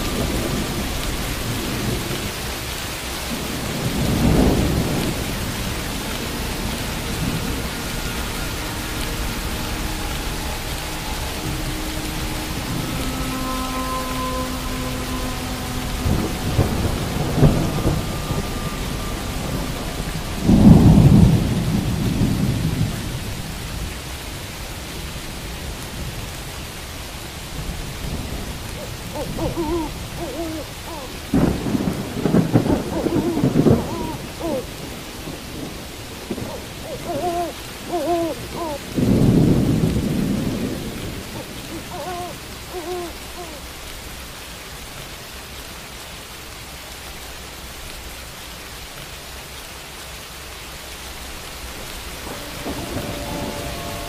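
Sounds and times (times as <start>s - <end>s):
thunder rumbling: 0.0s - 43.9s, 51.6s - 54.0s
steady rain: 0.0s - 54.0s
low hoot-like calls: 7.6s - 21.4s, 28.7s - 35.1s, 36.3s - 39.0s, 41.0s - 43.8s.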